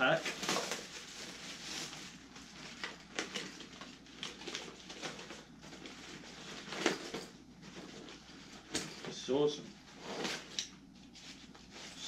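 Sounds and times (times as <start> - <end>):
plastic packaging crinkling: 0.0 - 7.1.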